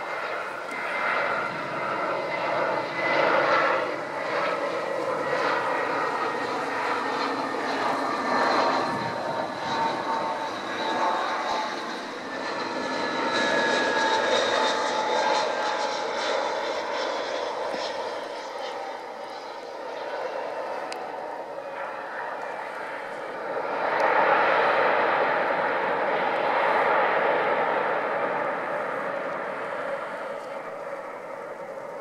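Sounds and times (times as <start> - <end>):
jet engines rushing and whining: 0.0 - 32.0.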